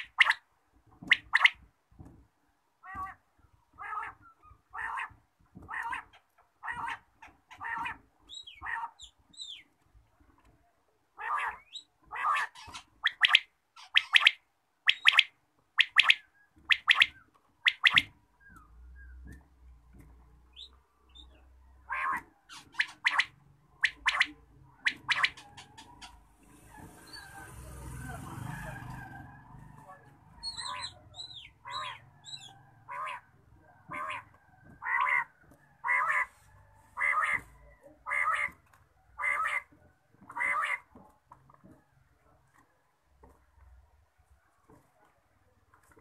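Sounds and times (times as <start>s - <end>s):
quails calling: 0.0s - 0.4s, 1.0s - 1.7s, 2.8s - 9.7s, 11.2s - 19.5s, 20.5s - 27.3s, 29.8s - 41.0s.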